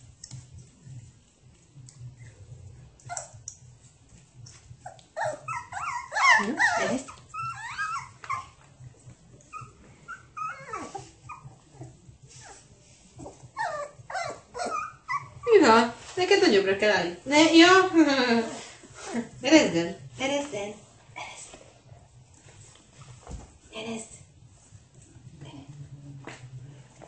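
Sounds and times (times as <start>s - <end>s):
puppies yelping: 4.9s - 8.6s, 9.5s - 11.9s, 13.5s - 15.5s.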